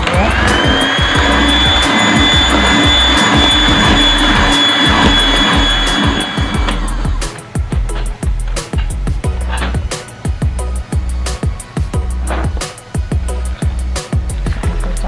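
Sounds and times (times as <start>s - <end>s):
electric hand mixer whining: 0.0s - 7.4s
background music with steady beat: 0.0s - 15.0s.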